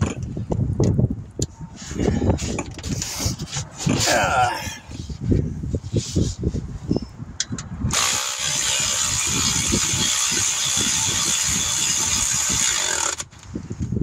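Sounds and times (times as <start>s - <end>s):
electric ratchet running: 7.9s - 13.3s.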